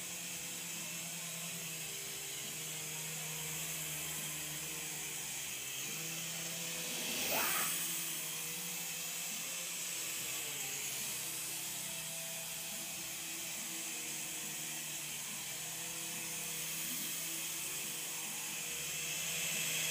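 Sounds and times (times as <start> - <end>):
toy helicopter rotors whirring: 0.0 - 19.9.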